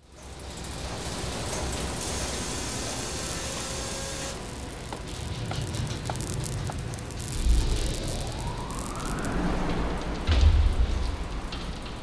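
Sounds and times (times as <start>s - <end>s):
steady hiss: 0.1s - 12.0s
bright hiss: 0.4s - 10.3s
low rumble: 4.4s - 12.0s.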